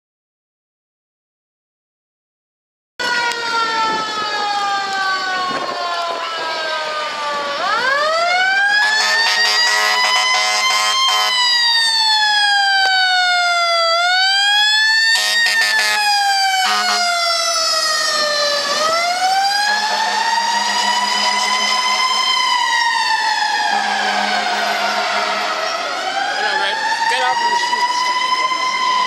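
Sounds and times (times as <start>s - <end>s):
fire truck siren wailing: 3.0s - 29.0s
air horn blasts: 8.8s - 11.5s, 15.1s - 17.2s, 19.6s - 22.8s, 23.6s - 26.7s.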